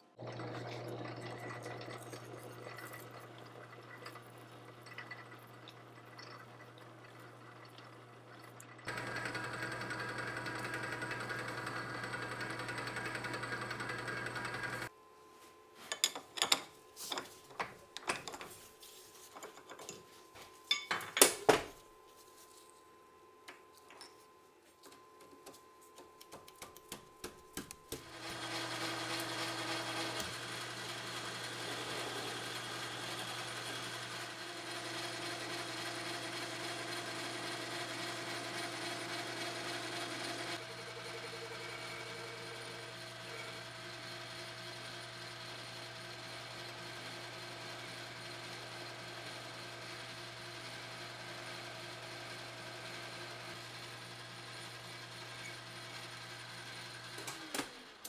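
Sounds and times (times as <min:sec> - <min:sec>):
metal lathe humming: 0:08.9 - 0:14.9, 0:28.1 - 0:57.0.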